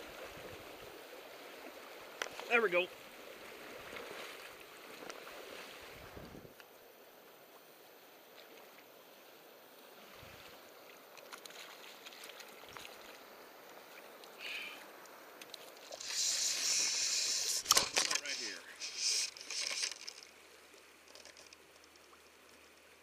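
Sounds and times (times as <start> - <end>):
river water running: 0.0 - 23.0
hissing rush: 15.9 - 20.2.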